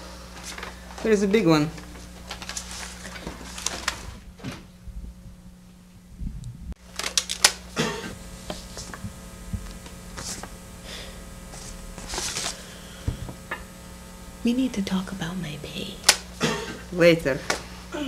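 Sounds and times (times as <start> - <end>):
faint electrical hum: 0.0 - 18.0
paper rustling: 0.4 - 1.2, 1.8 - 4.6, 6.9 - 7.6, 8.4 - 10.6, 11.5 - 12.8.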